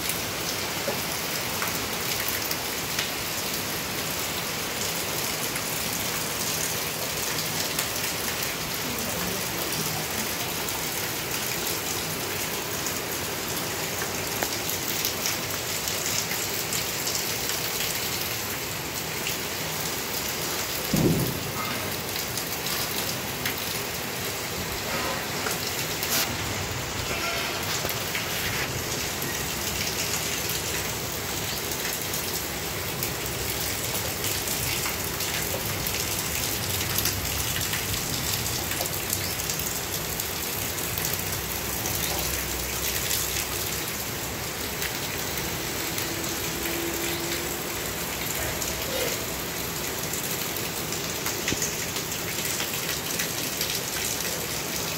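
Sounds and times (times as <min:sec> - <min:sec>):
heavy rain pouring: 0:00.0 - 0:54.9
low thump: 0:20.9 - 0:21.6.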